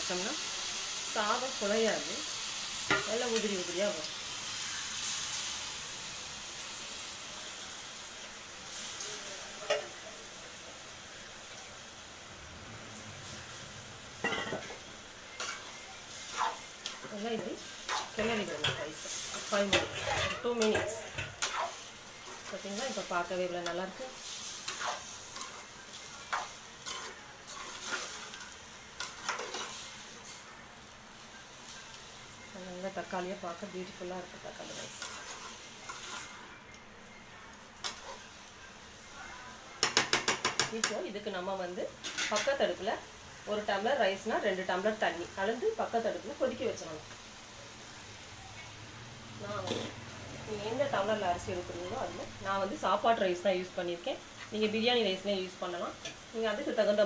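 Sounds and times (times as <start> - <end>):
food sizzling in a pan: 0.0 - 57.0
metal spoon scraping a pan: 14.2 - 30.4, 34.5 - 36.6, 37.8 - 38.3, 42.0 - 42.8, 49.6 - 50.0.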